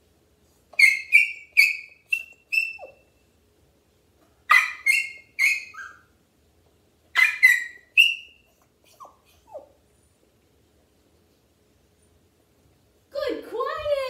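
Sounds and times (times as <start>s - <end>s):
puppy barking high-pitched yaps: 0.8s - 3.1s, 4.5s - 6.1s, 7.1s - 9.8s.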